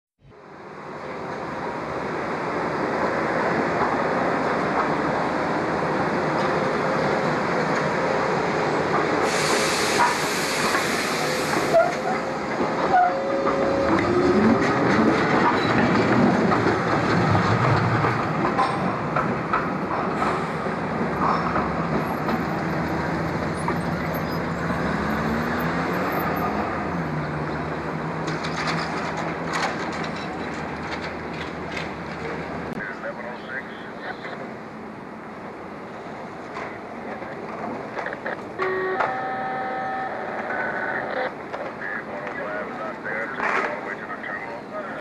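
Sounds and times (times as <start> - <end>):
wheel-on-rail noise: 5.9 - 32.7
tram motor whine: 7.8 - 17.9, 38.0 - 41.8
hissing burst: 9.2 - 12.0.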